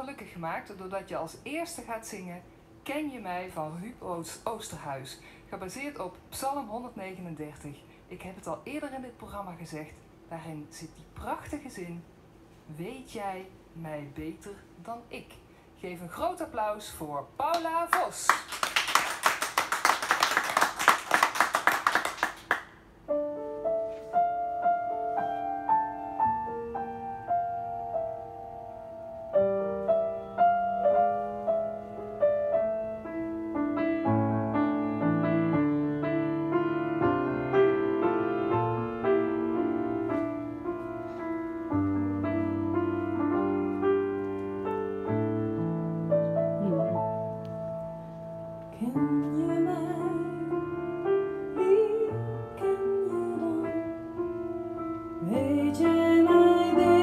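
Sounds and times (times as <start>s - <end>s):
applause: 17.5s - 22.8s
grand piano playing chords: 22.8s - 57.0s.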